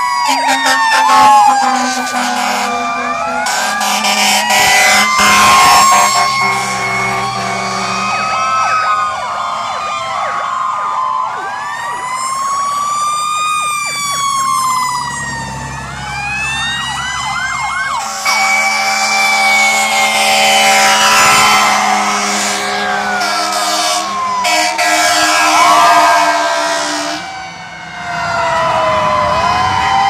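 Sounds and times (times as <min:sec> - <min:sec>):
emergency sirens wailing: 0:00.0 - 0:30.0
yelping siren: 0:00.0 - 0:30.0.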